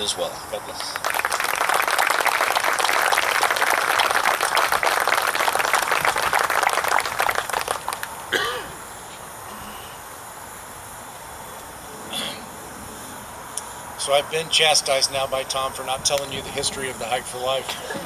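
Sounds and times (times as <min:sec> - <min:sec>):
crowd applauding: 0:00.7 - 0:08.3.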